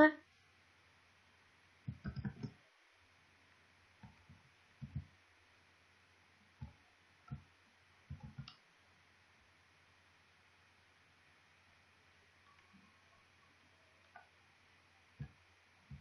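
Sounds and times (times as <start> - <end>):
mouse and keyboard clicks: 1.9 - 2.6.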